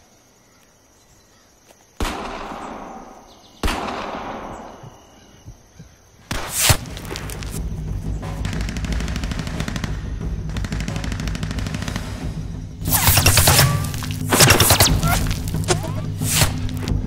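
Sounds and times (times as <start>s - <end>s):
gunshots with echoing tail: 2.0s - 4.9s, 8.2s - 16.6s
loud sharp crack: 12.9s - 16.8s.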